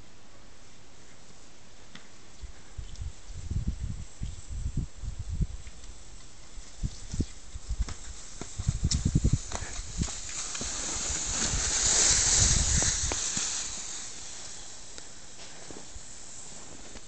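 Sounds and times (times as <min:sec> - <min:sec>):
skis hissing over snow: 0:06.0 - 0:17.0.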